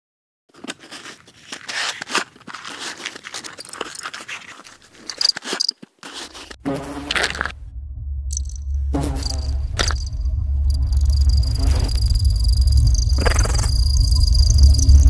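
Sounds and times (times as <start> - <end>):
cardboard drawer scraping: 0.5 - 7.5
high squeaky scrapes: 0.6 - 7.5.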